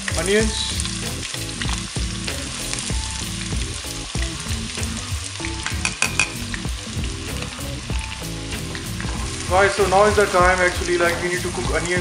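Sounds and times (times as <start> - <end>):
onions sizzling in oil: 0.0 - 12.0
utensil clicking against pot: 5.7 - 6.5.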